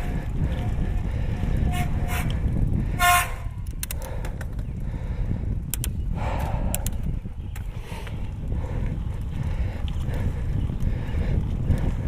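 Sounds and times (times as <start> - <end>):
low rumble of tyres and wind: 0.0 - 12.0
sharp ticks: 3.6 - 4.7, 5.6 - 6.0, 6.6 - 7.7.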